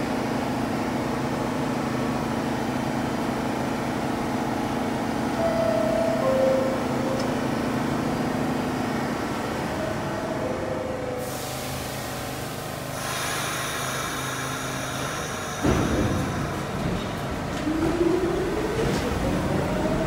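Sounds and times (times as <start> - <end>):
subway train humming: 0.0 - 20.0
air hiss of doors closing: 11.2 - 17.3.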